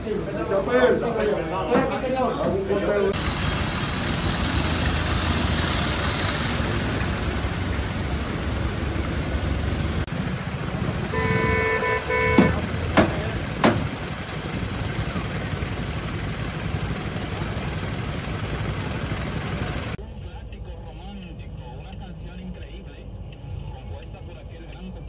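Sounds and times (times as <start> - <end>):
vehicle engines running: 0.0 - 24.8
street noise: 0.0 - 25.0
vehicle horn toots: 11.0 - 13.2
sharp knocks: 12.3 - 14.0.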